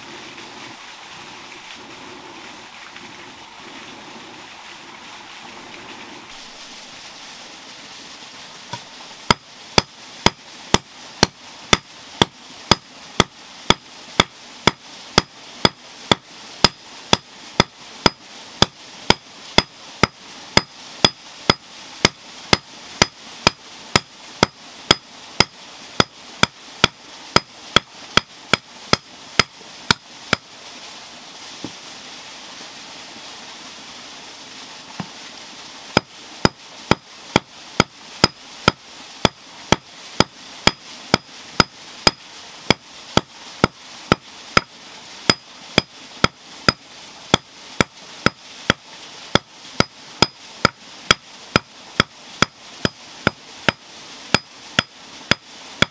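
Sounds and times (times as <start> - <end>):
hammer striking iron: 19.1 - 29.0.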